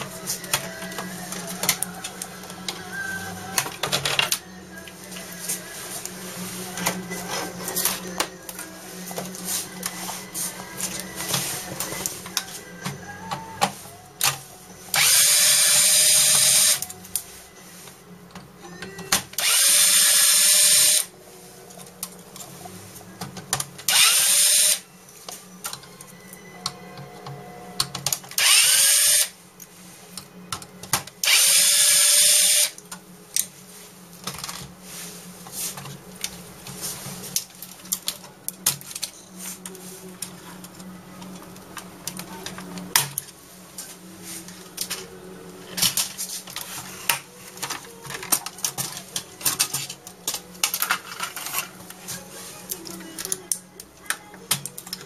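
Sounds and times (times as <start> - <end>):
handheld power tool running: 15.0 - 16.8, 19.4 - 21.1, 23.9 - 24.8, 28.4 - 29.3, 31.2 - 32.8
plastic parts clicking and rattling: 45.7 - 52.0.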